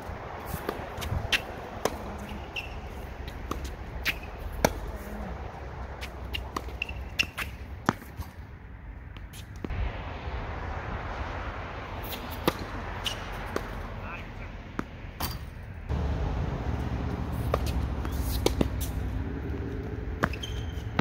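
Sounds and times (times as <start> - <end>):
tennis balls bouncing: 0.0 - 9.8, 12.0 - 13.9, 14.7 - 21.0
tennis balls struck by rackets: 0.0 - 10.0, 11.7 - 21.0
short high squeaks: 2.3 - 3.0, 6.7 - 7.6, 20.3 - 21.0
low steady rumble: 9.7 - 14.8, 15.8 - 20.3.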